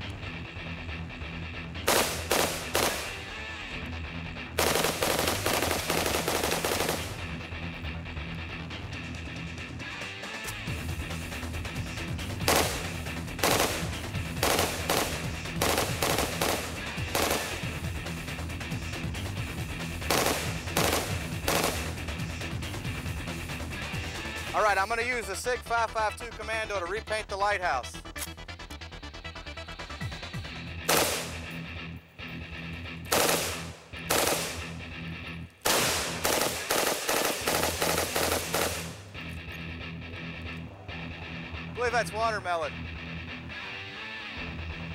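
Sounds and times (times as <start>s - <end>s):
background music: 0.0s - 44.9s
automatic gunfire bursts: 1.9s - 3.5s, 4.6s - 7.3s, 12.4s - 17.9s, 20.0s - 22.0s, 30.8s - 31.6s, 33.1s - 34.8s, 35.6s - 39.0s.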